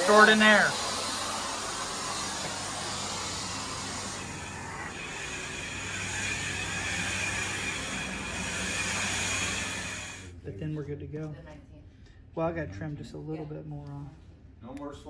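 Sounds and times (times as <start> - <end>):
carpet cleaning machine running: 0.0 - 10.3
faint high whine: 0.0 - 10.3.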